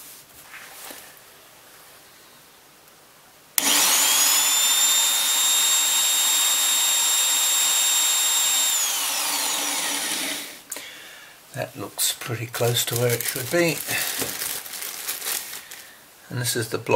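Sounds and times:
electric scraper motor whining: 3.6 - 10.6.

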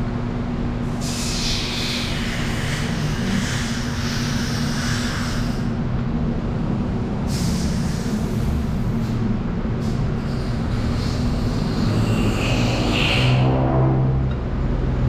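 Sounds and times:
low mechanical drone: 0.0 - 15.0
hiss: 1.0 - 5.7, 7.2 - 9.2, 9.8 - 13.4.

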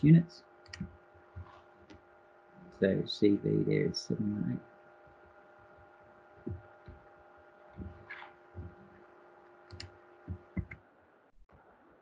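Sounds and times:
electrical hum: 0.0 - 12.0
computer taps and clicks: 0.7 - 2.0, 6.4 - 7.0, 9.7 - 10.8.

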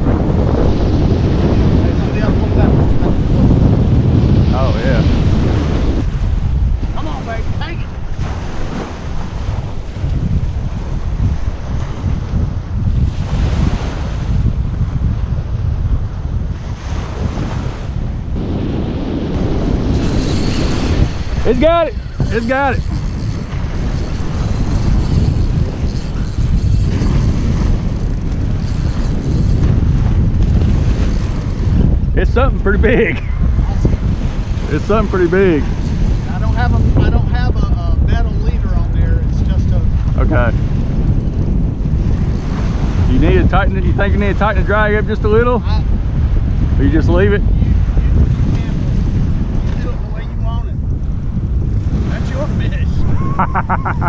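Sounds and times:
wind buffeting microphone: 0.0 - 54.0
waves washing onto beach: 4.4 - 15.3, 16.1 - 37.2.

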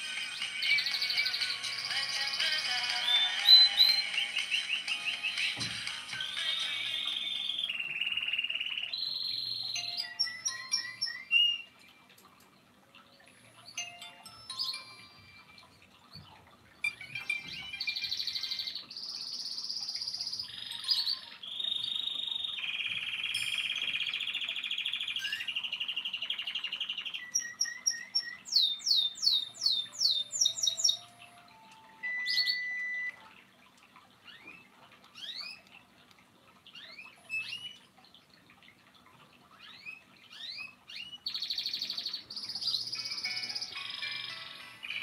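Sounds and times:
phone ringtone melodies: 0.0 - 7.6, 9.7 - 12.1, 13.6 - 16.0, 16.8 - 18.4, 20.5 - 21.5, 23.3 - 24.0, 29.8 - 33.5, 42.8 - 45.0
faint high chirps: 26.4 - 33.4
alarm beeps: 30.5 - 33.3.

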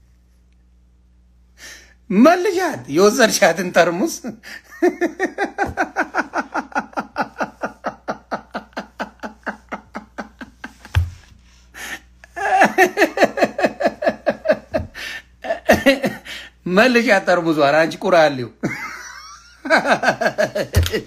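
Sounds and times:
man laughing hard: 4.4 - 11.2, 11.8 - 16.5, 18.6 - 21.0.

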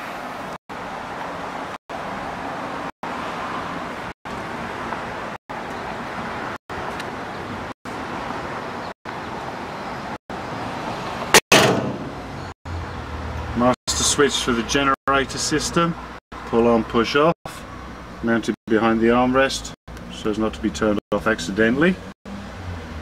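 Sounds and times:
loud bang: 11.3 - 12.4.

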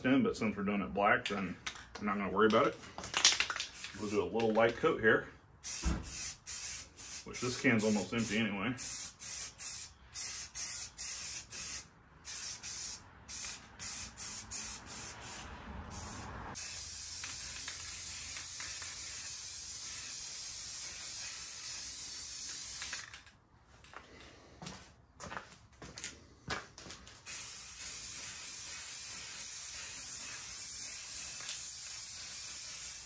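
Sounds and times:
spray paint can hissing: 3.3 - 4.7, 5.6 - 23.2, 27.2 - 33.0.

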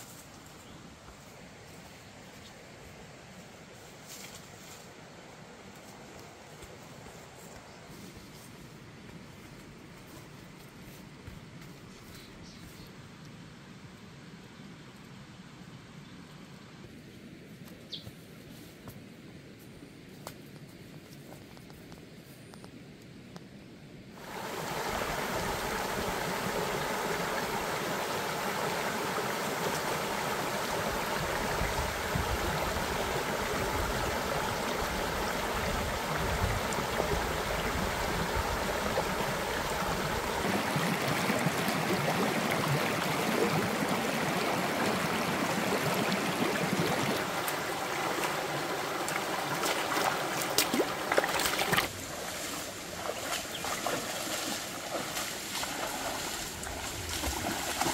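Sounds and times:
boots wading through water: 24.2 - 57.9
stream rushing over stones: 24.2 - 57.9.

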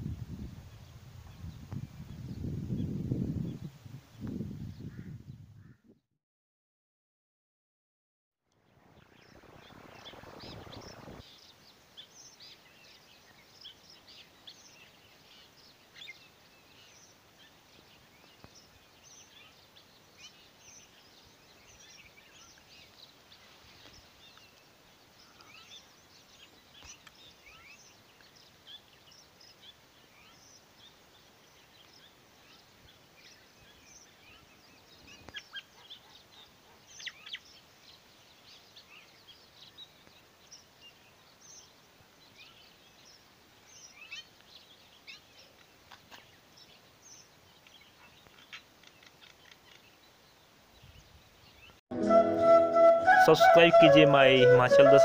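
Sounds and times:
small birds chirping: 8.5 - 51.8
rush of low noise: 8.6 - 11.8.

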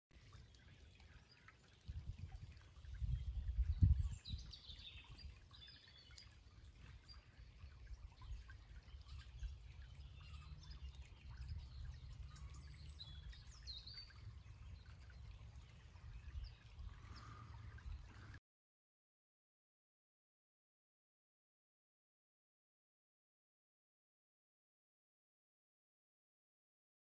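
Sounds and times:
stream trickling: 0.1 - 18.4
small birds chirping: 0.2 - 18.4.

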